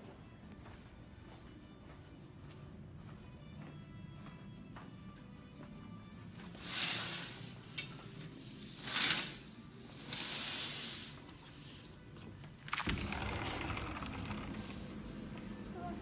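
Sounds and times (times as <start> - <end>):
outdoor noise: 0.0 - 16.0
sliding glass door opening: 6.5 - 11.9, 12.6 - 16.0.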